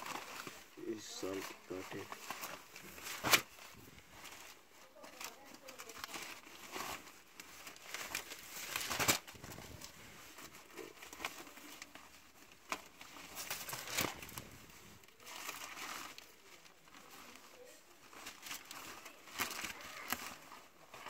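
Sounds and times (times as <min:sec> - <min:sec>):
paper rustling and crinkling: 0:00.0 - 0:21.0.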